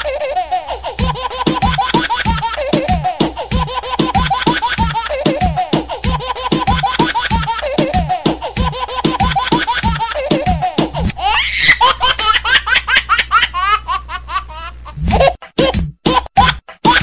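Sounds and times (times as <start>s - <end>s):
baby laughing: 0.0s - 17.0s
disco dance beat: 1.0s - 11.0s, 15.1s - 17.0s.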